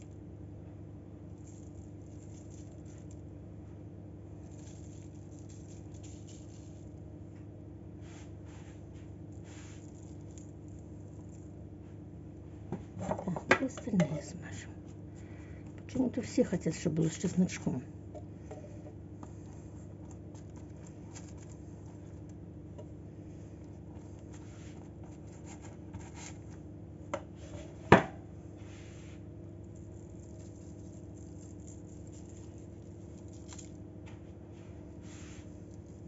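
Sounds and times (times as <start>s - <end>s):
steady low hum: 0.0s - 36.0s
brush scratching on bread: 8.0s - 11.5s, 24.0s - 26.5s, 28.6s - 33.8s, 34.5s - 36.0s.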